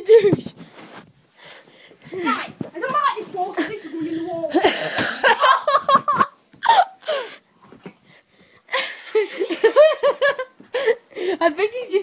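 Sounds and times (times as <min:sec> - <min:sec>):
kids laughing: 0:03.4 - 0:07.2, 0:08.7 - 0:10.9.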